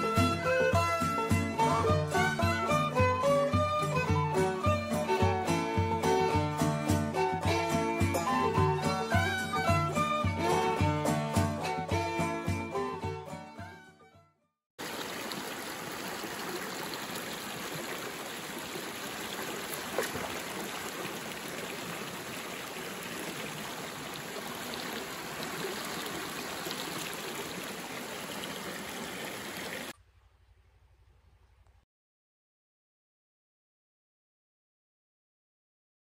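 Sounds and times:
stream rushing over rocks: 0:14.8 - 0:30.0.

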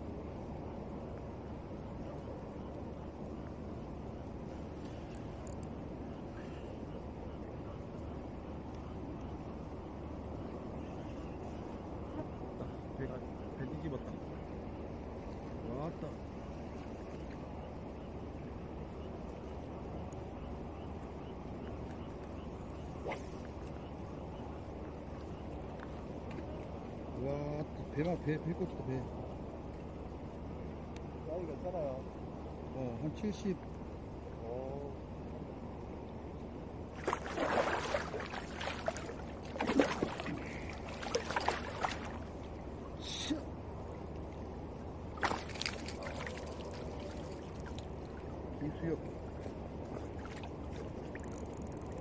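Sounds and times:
water rushing: 0:36.9 - 0:51.2
faint regular ticking: 0:51.2 - 0:52.0.

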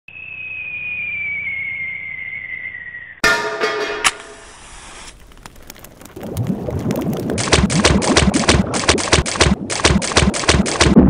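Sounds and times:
descending whistling tone: 0:00.1 - 0:03.2
metallic clang ringing: 0:03.2 - 0:04.6.

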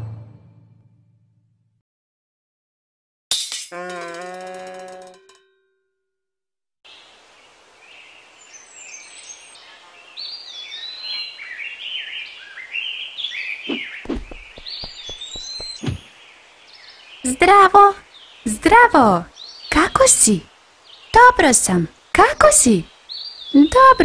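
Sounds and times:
faint steady hiss: 0:06.9 - 0:13.6, 0:16.0 - 0:24.0
birds chirping and warbling: 0:06.9 - 0:24.0
short soft thumps: 0:14.1 - 0:16.1.

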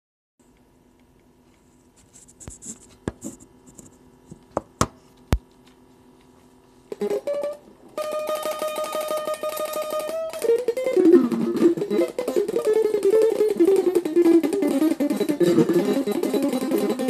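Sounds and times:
faint steady hum: 0:00.4 - 0:17.0
electric guitar picked notes: 0:06.9 - 0:17.0
guitar handling knocks and scratches: 0:08.1 - 0:17.0.

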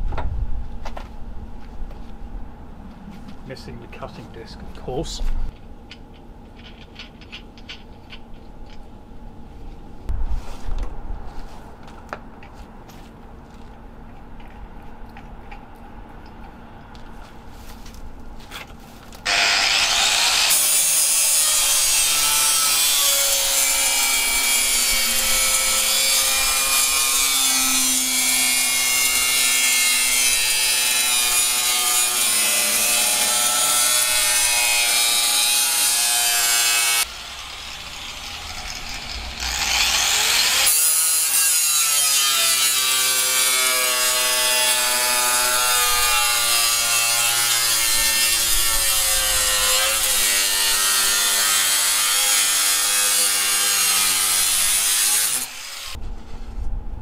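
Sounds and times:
angle grinder cutting metal: 0:19.2 - 0:56.0.

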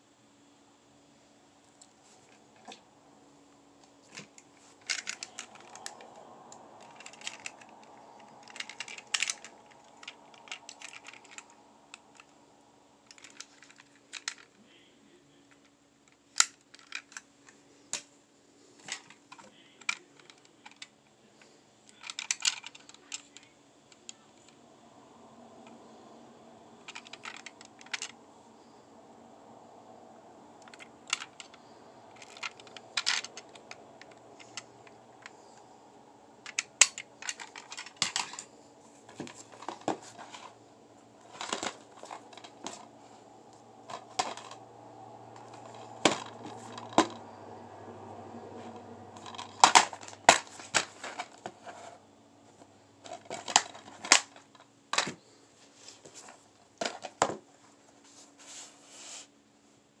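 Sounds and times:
faint steady hum: 0:00.0 - 1:00.0
plastic cases clicking and tapping: 0:04.1 - 0:12.3, 0:36.4 - 0:40.6, 0:41.2 - 0:42.9, 0:43.8 - 0:47.8, 0:48.6 - 0:51.8.

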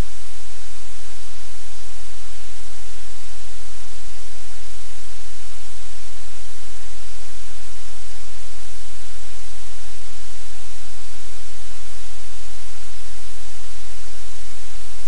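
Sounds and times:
loud steady static hiss: 0:00.0 - 0:15.0.

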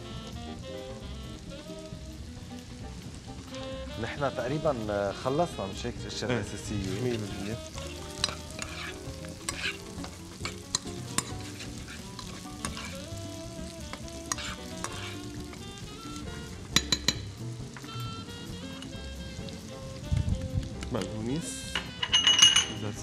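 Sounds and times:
meat sizzling in a frying pan: 0:00.0 - 0:23.0
utensil scraping a pan: 0:06.4 - 0:16.5.

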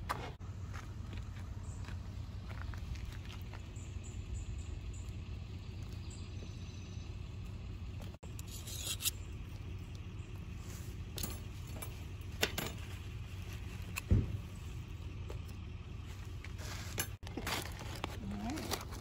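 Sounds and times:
steady low rumble: 0:00.0 - 0:19.0
metal tongs scraping skewers: 0:08.4 - 0:09.2.

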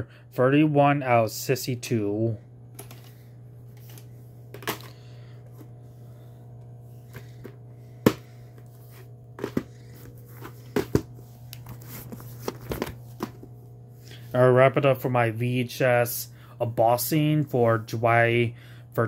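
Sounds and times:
low hum: 0:00.0 - 0:18.8.

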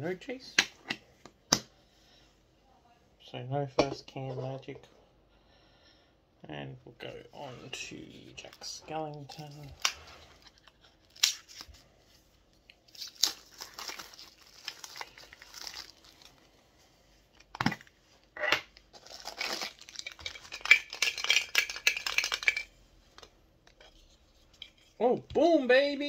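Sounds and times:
plastic bag crinkling and tearing: 0:12.8 - 0:16.4, 0:18.9 - 0:21.3.

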